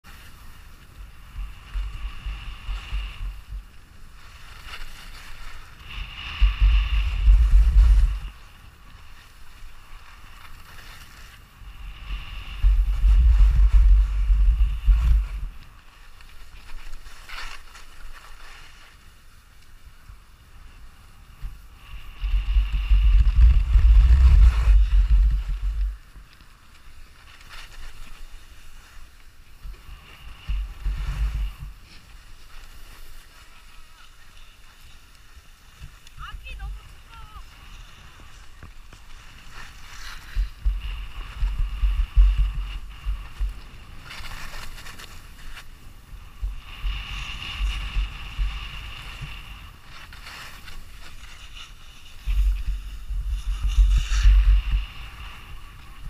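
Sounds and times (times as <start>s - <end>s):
skis sliding on snow: 0.0s - 56.0s
wind buffeting microphone: 0.4s - 16.9s, 19.8s - 26.5s, 29.5s - 56.0s.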